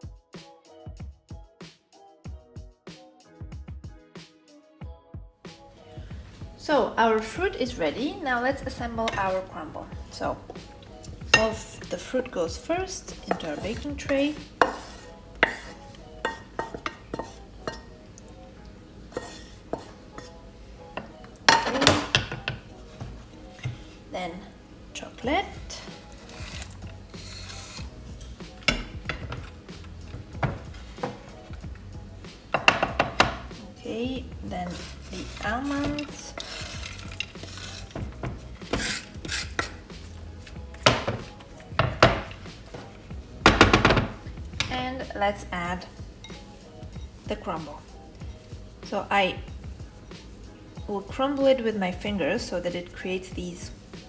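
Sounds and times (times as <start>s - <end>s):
wooden spatula scraping frying pan: 13.2s - 17.5s, 19.1s - 20.4s, 25.7s - 31.6s, 34.4s - 40.5s.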